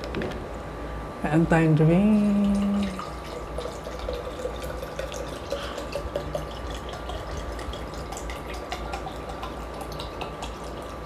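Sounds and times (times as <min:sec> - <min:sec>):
drink pouring into glass: 0:02.5 - 0:11.0.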